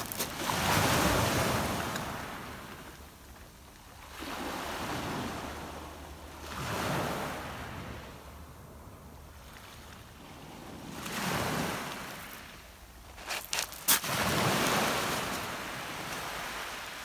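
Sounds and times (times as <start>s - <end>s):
waves lapping on shingle: 0.0s - 3.0s, 3.8s - 5.8s, 9.4s - 17.0s.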